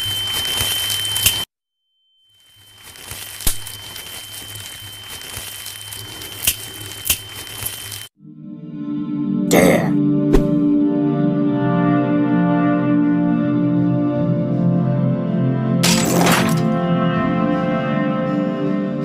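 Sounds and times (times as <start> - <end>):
crackling static noise: 0.0 - 1.5, 2.4 - 8.1
music: 8.2 - 19.0.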